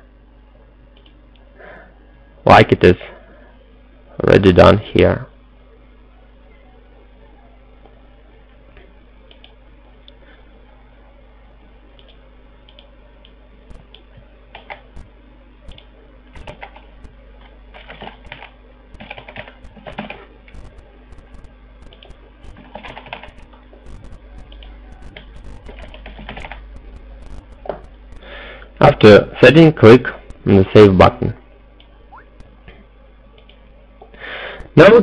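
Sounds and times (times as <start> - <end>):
low steady hum: 0.0 - 35.0
computer keyboard typing: 13.7 - 15.1, 15.7 - 17.1, 17.7 - 28.3.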